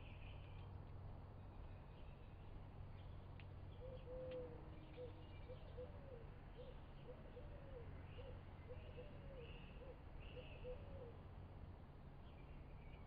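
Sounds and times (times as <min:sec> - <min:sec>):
bird cooing hoots: 0:05.0 - 0:11.2.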